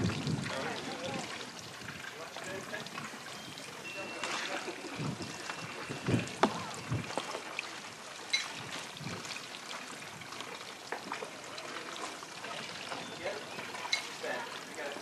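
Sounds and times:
wind rumbling on microphone: 0:00.0 - 0:03.6, 0:04.9 - 0:07.3, 0:08.5 - 0:10.4
murmur of outdoor crowd: 0:00.0 - 0:09.0, 0:09.6 - 0:15.0.

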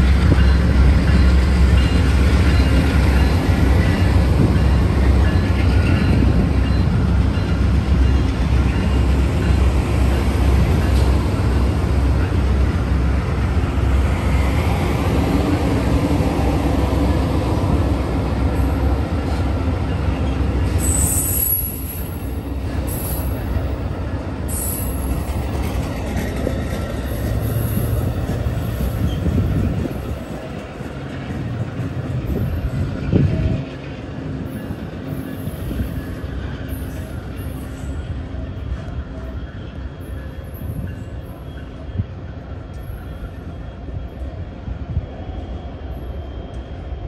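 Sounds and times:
train wheels rumbling on rails: 0:00.0 - 0:47.0
high-pitched wheel squeals: 0:20.2 - 0:23.5.

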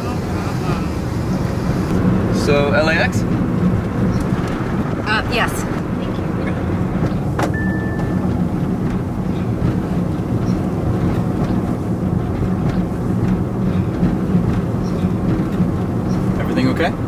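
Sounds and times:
car engine and road noise: 0:00.0 - 0:17.0
short high beep: 0:07.5 - 0:08.2.

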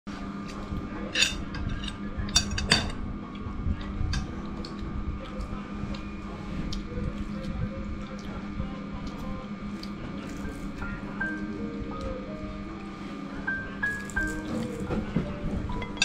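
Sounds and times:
steady low hum: 0:00.1 - 0:16.0.

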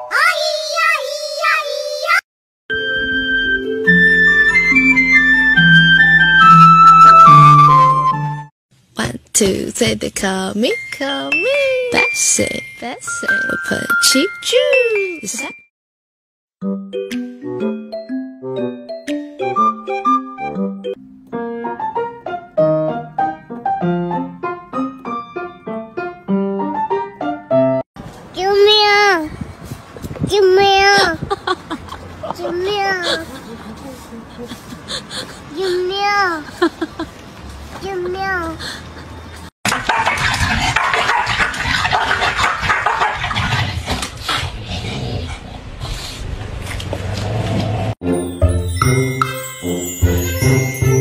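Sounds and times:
light piano tune: 0:20.8 - 0:27.8
dogs growling and snapping: 0:39.7 - 0:48.0.

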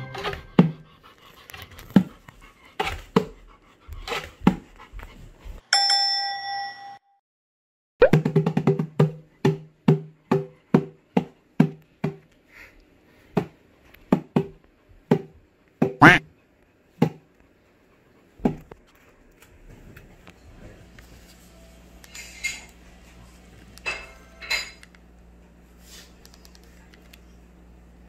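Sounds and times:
bell-like chime: 0:05.8 - 0:07.2.

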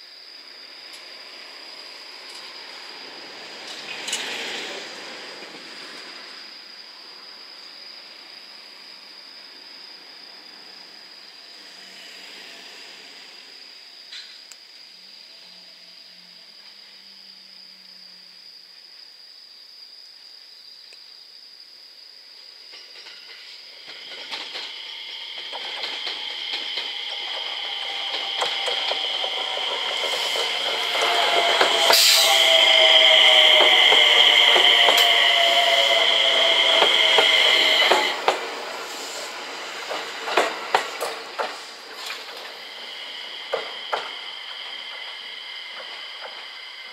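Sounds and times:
crickets singing: 0:00.0 - 0:46.9
rail clicks: 0:03.5 - 0:06.2, 0:22.7 - 0:46.9
electric train running noise: 0:22.7 - 0:46.9.

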